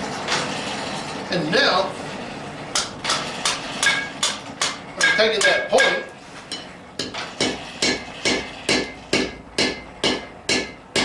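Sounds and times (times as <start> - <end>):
hammer striking hot steel: 2.8 - 11.0.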